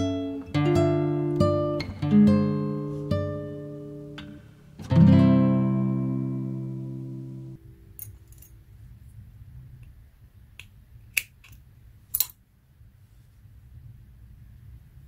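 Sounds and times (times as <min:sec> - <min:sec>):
guitar music: 0:00.0 - 0:07.6.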